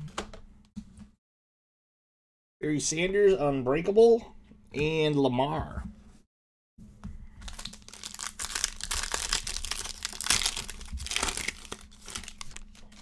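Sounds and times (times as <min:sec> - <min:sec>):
foil wrapper tearing and crinkling: 0:07.4 - 0:13.0.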